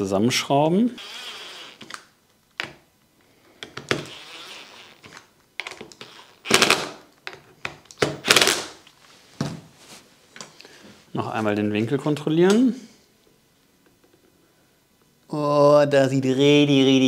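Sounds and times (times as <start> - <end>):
drill driving screws into wood: 1.0 - 2.0, 3.8 - 5.2, 6.0 - 7.0, 8.0 - 8.8.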